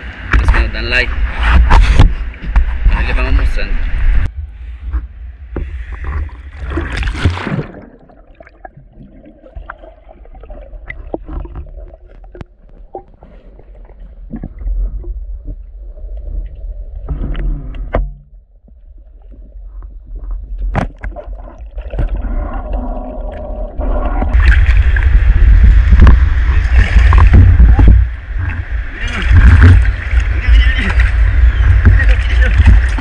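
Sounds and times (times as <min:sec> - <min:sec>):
muffled underwater rumble: 0:00.0 - 0:33.0
water splashing and rushing: 0:05.0 - 0:33.0
underwater clicks and knocks: 0:10.8 - 0:24.8, 0:29.2 - 0:33.0.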